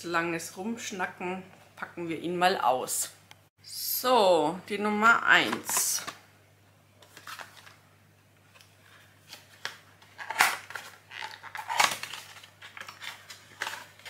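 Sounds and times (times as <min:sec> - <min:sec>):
cardboard and paper rustling: 0:07.0 - 0:07.8, 0:08.5 - 0:14.0.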